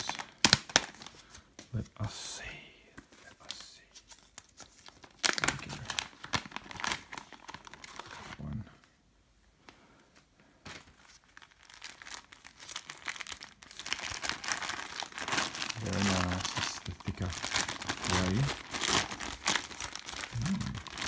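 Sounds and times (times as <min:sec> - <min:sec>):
plastic bag crinkling: 0:04.4 - 0:08.4, 0:10.7 - 0:21.0
stiff fabric pack being handled: 0:10.6 - 0:21.0.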